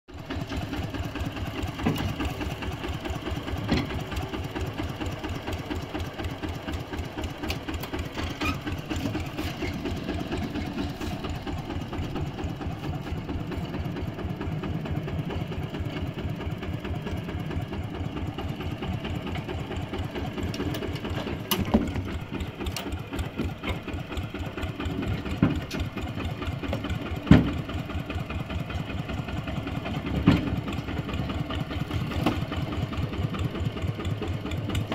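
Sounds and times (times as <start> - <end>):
diesel engine chugging: 0.1 - 34.9
sharp clunks: 20.6 - 22.1, 27.2 - 27.6.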